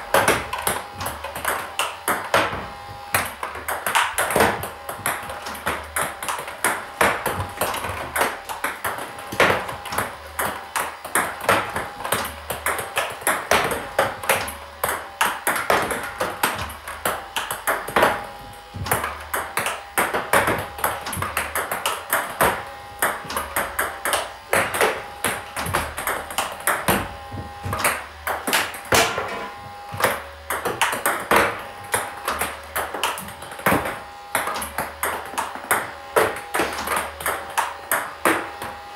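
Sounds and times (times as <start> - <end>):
table tennis ball clicks: 18.8 - 38.8.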